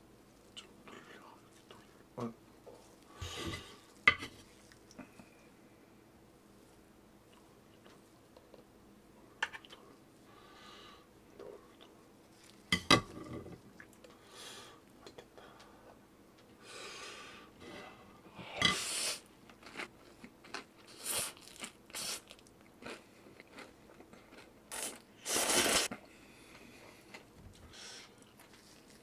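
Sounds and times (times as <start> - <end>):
crunchy fried food being chewed: 19.2 - 27.3, 28.2 - 29.0.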